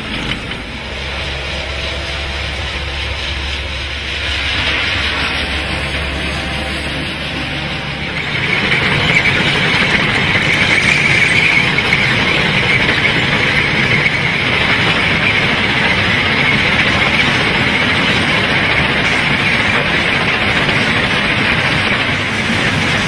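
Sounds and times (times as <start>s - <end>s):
low mechanical rumble: 0.0s - 11.4s
high grinding noise: 0.0s - 23.0s.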